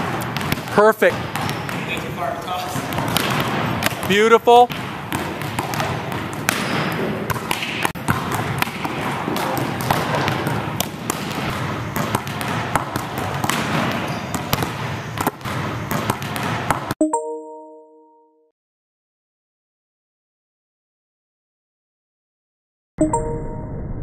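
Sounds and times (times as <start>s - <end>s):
gym hall background noise: 0.0s - 17.0s
volleyballs slapping and bouncing: 0.0s - 17.0s.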